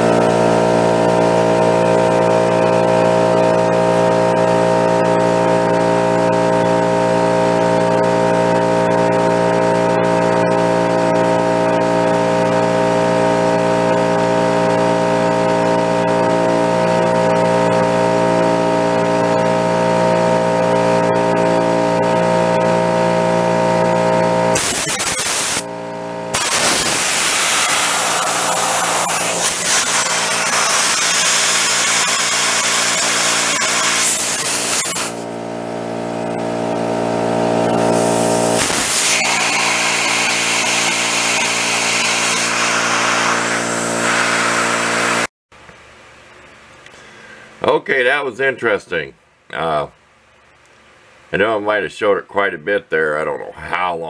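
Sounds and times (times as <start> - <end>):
air compressor running: 0.0 - 45.3
compressed air hissing: 24.6 - 25.6, 26.3 - 35.2, 37.8 - 45.3.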